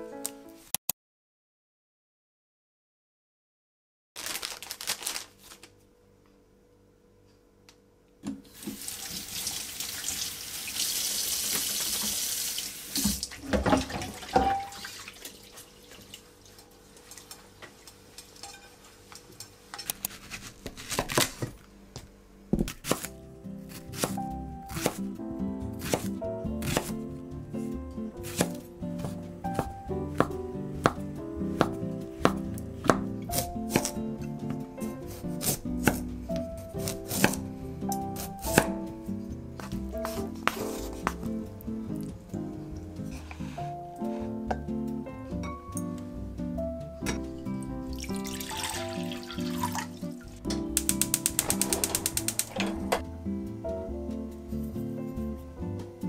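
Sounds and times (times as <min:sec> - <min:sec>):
background music: 0:00.0 - 0:00.7, 0:22.8 - 0:56.0
tap water running into sink: 0:08.5 - 0:17.4, 0:47.9 - 0:50.1
dishes scrubbed and knocking: 0:13.4 - 0:14.8
knife cutting on wooden board: 0:23.7 - 0:25.1, 0:25.8 - 0:27.0, 0:28.2 - 0:31.0, 0:36.8 - 0:37.5, 0:39.6 - 0:41.2.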